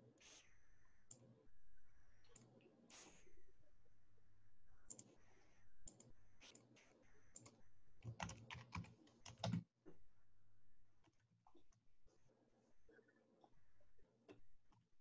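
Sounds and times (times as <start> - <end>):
faint keyboard typing: 4.9 - 9.7.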